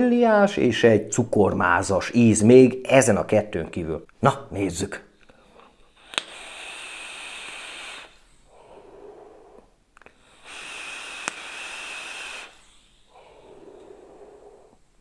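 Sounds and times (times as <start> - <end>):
person exhaling vapour: 5.3 - 14.8
air hissing through vape with whistle: 5.9 - 14.7.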